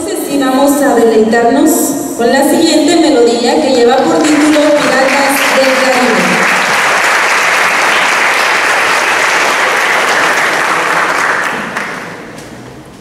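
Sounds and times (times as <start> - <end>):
audience applauding: 4.0 - 12.3.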